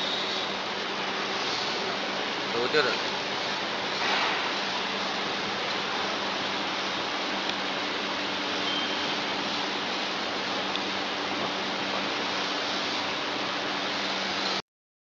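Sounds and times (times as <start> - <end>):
machine rushing hiss: 3.9 - 4.8.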